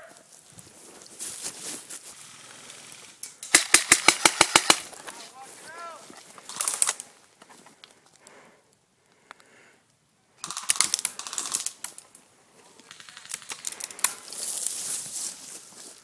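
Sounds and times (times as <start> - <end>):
airsoft rifles firing bursts: 3.4 - 4.9, 6.5 - 7.0, 10.4 - 11.8, 12.9 - 14.2.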